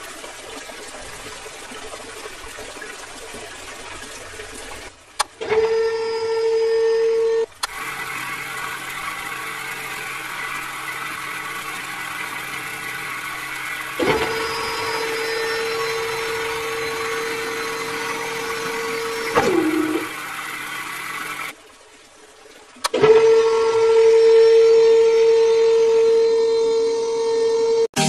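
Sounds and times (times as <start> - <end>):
small motors whining: 5.3 - 21.6, 22.9 - 27.9.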